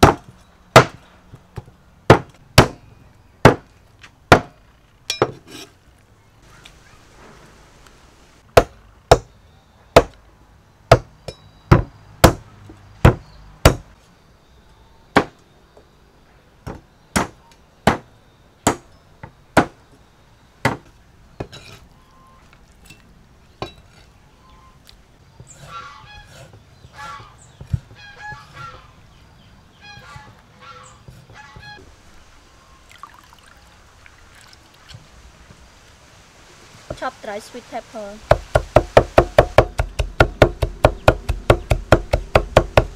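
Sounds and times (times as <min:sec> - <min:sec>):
cleaver chopping on wooden block: 0:02.1 - 0:02.8, 0:11.7 - 0:12.4, 0:13.0 - 0:13.8, 0:38.3 - 0:42.9
poultry calling: 0:24.3 - 0:24.8, 0:25.5 - 0:31.8.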